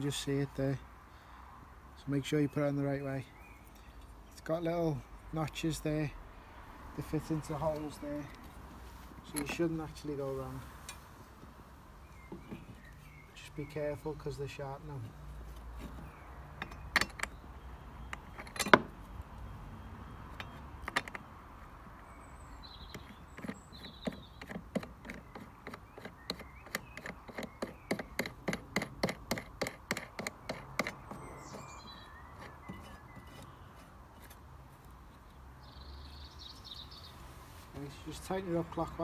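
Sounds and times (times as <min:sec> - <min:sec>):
birds chirping: 0:02.0 - 0:06.2, 0:07.0 - 0:39.0
metal clicks and knocks: 0:09.3 - 0:09.7, 0:16.5 - 0:17.4, 0:18.1 - 0:19.0, 0:20.3 - 0:21.3, 0:22.9 - 0:31.2.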